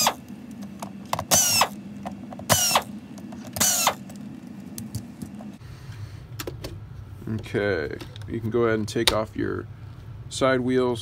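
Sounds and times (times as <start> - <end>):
screwdriver whirring: 0.0 - 4.2.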